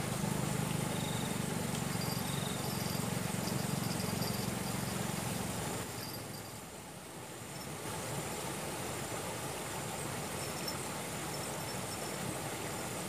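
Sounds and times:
low even hiss: 0.0 - 13.0
high insect trill: 0.8 - 6.7, 10.2 - 12.5
faint high chirps: 0.9 - 5.0.

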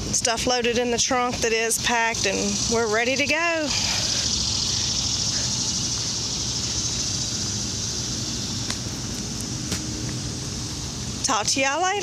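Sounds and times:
high hiss: 2.0 - 11.2.

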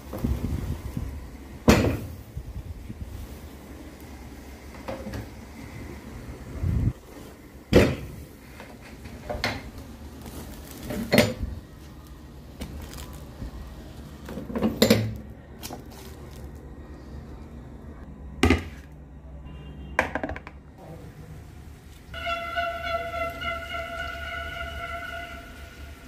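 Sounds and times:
low steady hum: 0.0 - 26.0
plastic bowl set on stone counter: 20.0 - 20.7.

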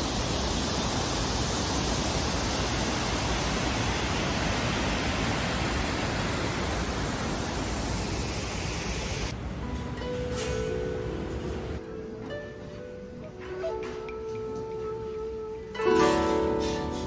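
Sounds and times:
water rushing over weir: 0.0 - 9.3.

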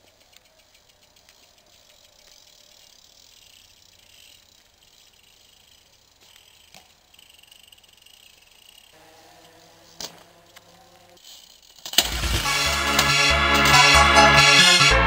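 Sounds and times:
bike rolling over stone paving: 0.0 - 14.4
bike wheels knocking on stone: 8.1 - 14.1.

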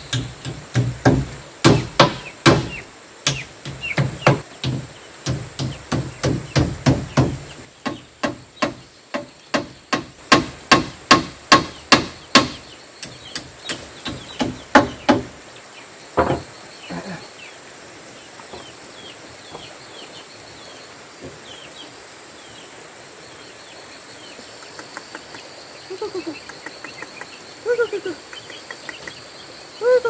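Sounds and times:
hammer blows on wood: 0.1 - 15.3.

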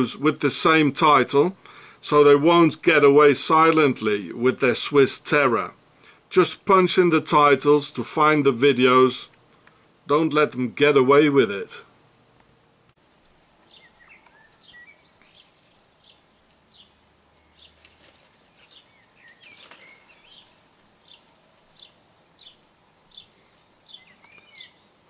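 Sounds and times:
rustle: 0.0 - 25.0
small birds chirping: 13.0 - 25.0.

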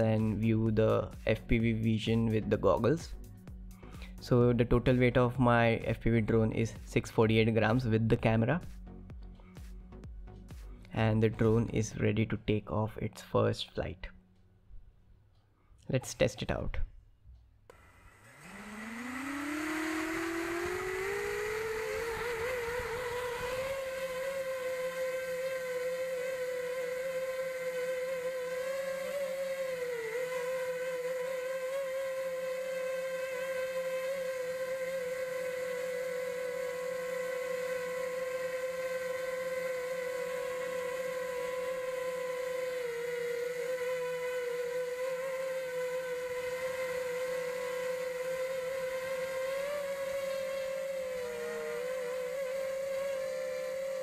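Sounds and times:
drone propeller whine: 17.7 - 54.0.

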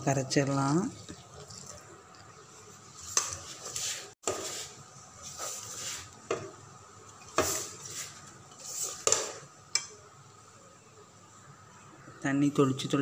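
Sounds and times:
hands mixing flour in metal pot: 0.0 - 6.6, 7.2 - 9.5.

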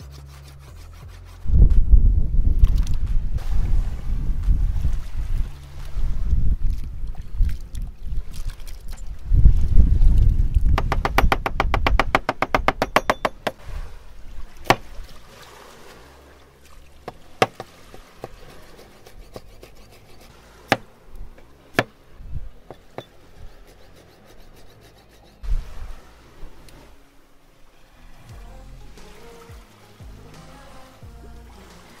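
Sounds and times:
low rumble: 0.6 - 8.3
knife chopping on cutting board: 17.1 - 20.0.

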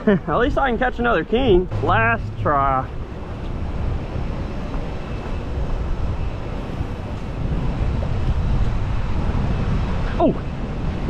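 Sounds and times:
wind on microphone: 1.5 - 11.0.

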